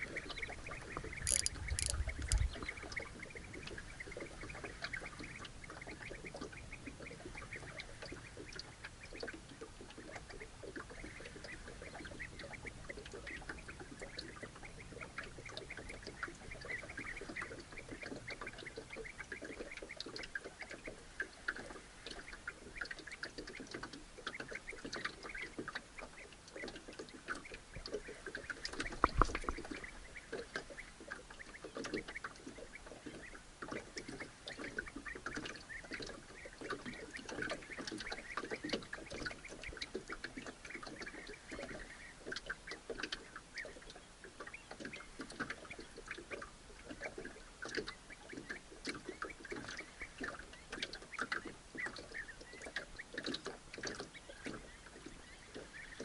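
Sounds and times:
bird calls: 0.0 - 9.4, 22.1 - 46.4, 47.0 - 56.0
waves lapping against boat: 0.0 - 56.0.

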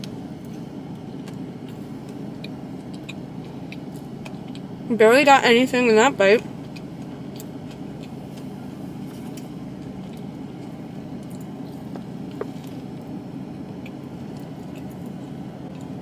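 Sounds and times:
car cabin hum: 0.0 - 16.0
chewing and mouth clicks: 0.4 - 4.7, 6.6 - 8.5, 9.2 - 13.1, 13.8 - 16.0.

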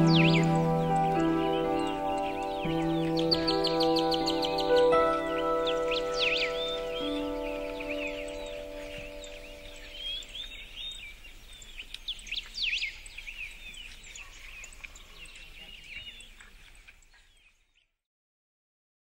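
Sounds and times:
held music chord: 0.0 - 10.8
small birds chirping: 0.0 - 18.0.

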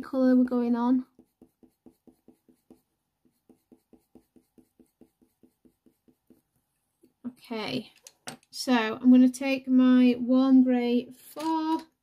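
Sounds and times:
pencil strokes on paper: 0.1 - 7.2.

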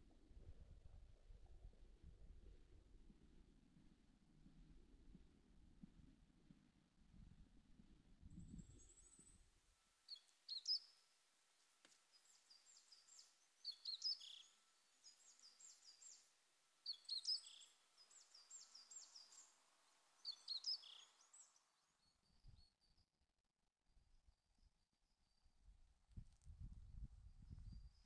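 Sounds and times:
songbird singing: 10.1 - 11.0, 11.8 - 22.3.

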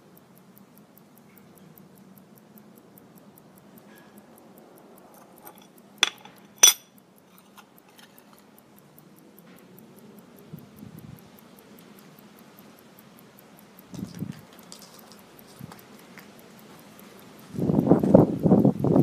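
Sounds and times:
pocket watch ticking: 0.0 - 19.0
metallic clinks of watch lid: 5.1 - 8.5.

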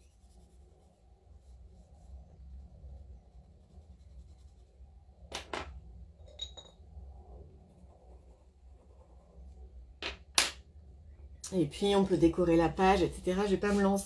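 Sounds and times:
pencil scratching on paper: 0.0 - 5.0, 7.5 - 9.6, 12.9 - 14.0.

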